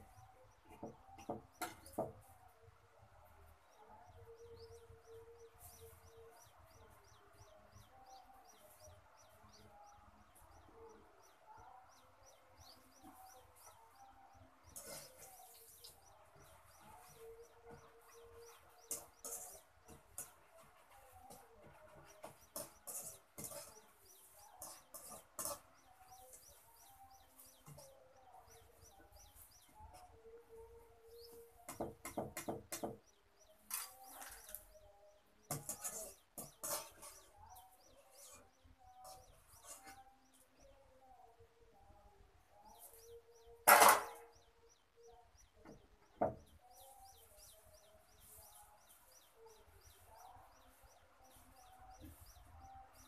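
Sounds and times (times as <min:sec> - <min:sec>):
chicks peeping: 0:03.7 - 0:40.8, 0:42.7 - 0:53.0
small bird chirping: 0:44.2 - 0:53.0.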